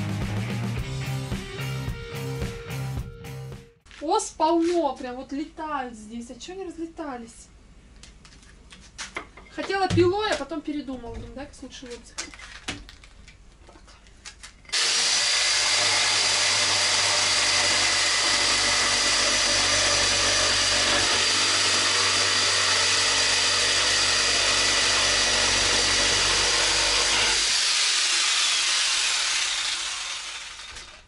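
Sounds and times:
electric jigsaw cutting wood: 0:14.7 - 0:31.0.

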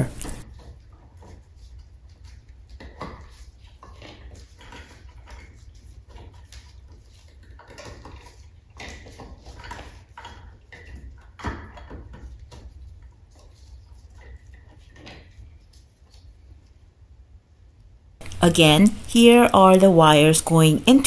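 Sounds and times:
low steady hum: 0:18.2 - 0:21.0.

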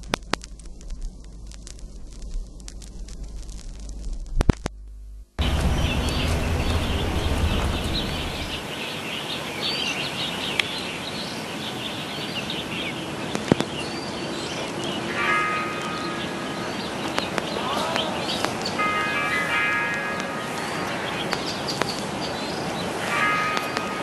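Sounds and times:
sharp clicks: 0:00.0 - 0:04.9, 0:17.0 - 0:18.9, 0:21.3 - 0:22.1
outdoor background hiss: 0:00.0 - 0:24.0
small birds chirping: 0:05.4 - 0:24.0.

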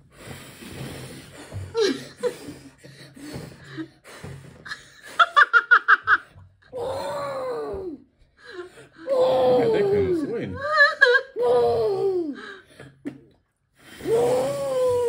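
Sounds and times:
boy blowing puffs of breath: 0:00.0 - 0:05.5, 0:13.7 - 0:14.6
long falling vocal sound: 0:14.0 - 0:15.0.

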